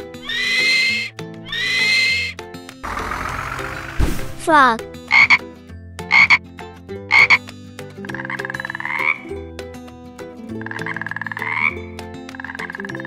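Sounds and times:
frog croaking: 0:00.2 - 0:04.0, 0:05.1 - 0:05.4, 0:06.1 - 0:06.4, 0:07.1 - 0:07.4, 0:08.0 - 0:09.3, 0:10.5 - 0:13.0.

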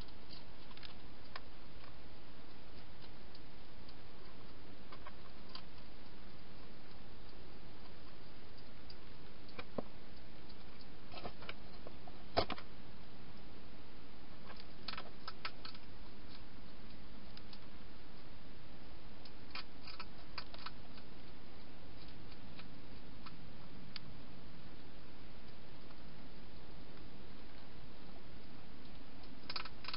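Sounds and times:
steady hiss: 0:00.0 - 0:29.9
hedgehog crunching food: 0:19.2 - 0:24.0, 0:29.2 - 0:29.9.

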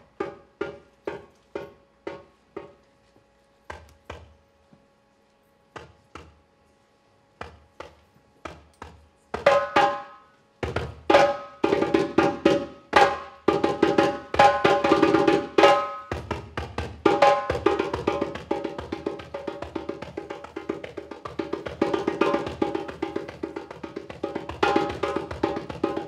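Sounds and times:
drum struck with mallet and hand: 0:00.1 - 0:02.8.

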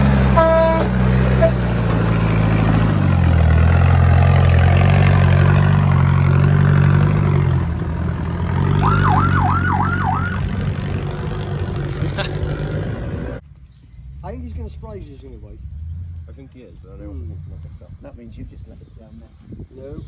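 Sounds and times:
truck engine under load: 0:00.0 - 0:13.4.

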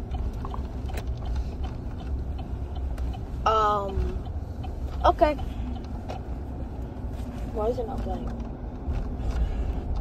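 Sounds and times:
road rumble inside car: 0:00.0 - 0:10.0.

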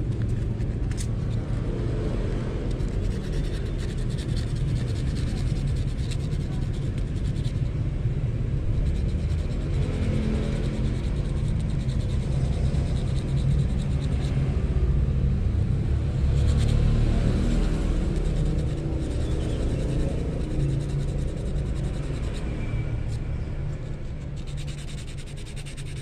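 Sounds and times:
sandpaper rubbing on hook: 0:00.0 - 0:01.6, 0:02.7 - 0:07.8, 0:08.6 - 0:14.5, 0:16.4 - 0:26.0.

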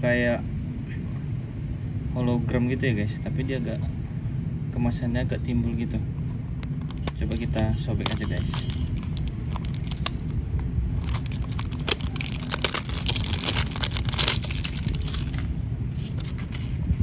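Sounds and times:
low rumble: 0:06.3 - 0:17.0
plastic wrap crinkling: 0:06.6 - 0:16.5.

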